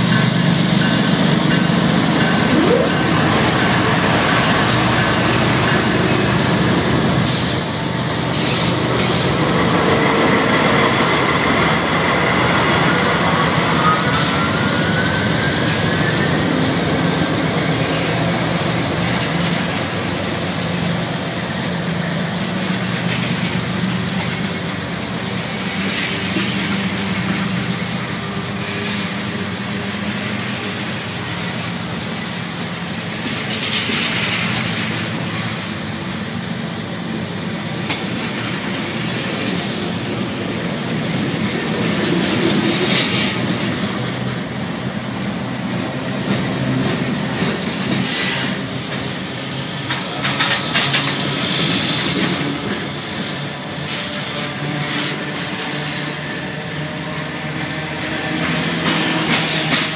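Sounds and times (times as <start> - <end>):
freight train rolling past: 0.0 - 59.9
wheels rumbling on rail: 0.0 - 59.9
clicks at rail joints: 46.2 - 52.8.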